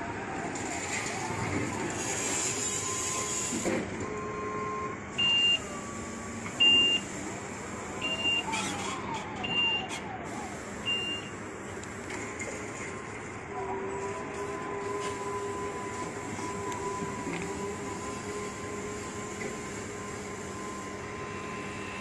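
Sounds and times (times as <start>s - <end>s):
electric loader drive whine: 0.0s - 22.0s
electronic warning beep: 4.4s - 5.7s, 6.6s - 7.1s, 8.0s - 8.5s, 10.8s - 11.3s.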